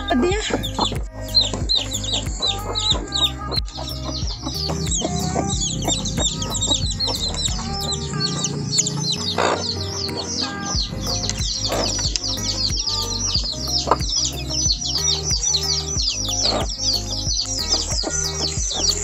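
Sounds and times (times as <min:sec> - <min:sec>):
chicks peeping: 0:00.0 - 0:19.0.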